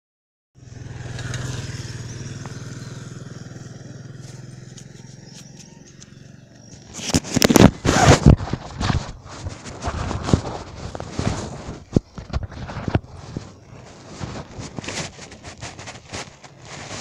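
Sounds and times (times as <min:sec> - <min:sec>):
microphone buffeting and crackling: 0:04.1 - 0:17.0.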